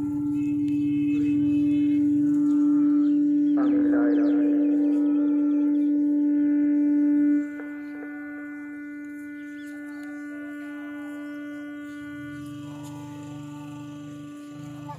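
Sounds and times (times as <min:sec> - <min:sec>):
siren long steady tone: 0:00.0 - 0:14.9.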